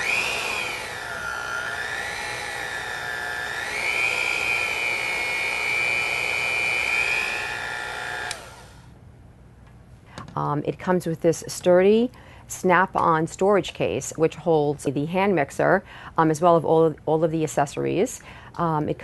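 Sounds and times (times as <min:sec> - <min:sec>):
hand mixer motor whining: 0:00.0 - 0:08.8
mixer switch click: 0:08.2 - 0:08.5.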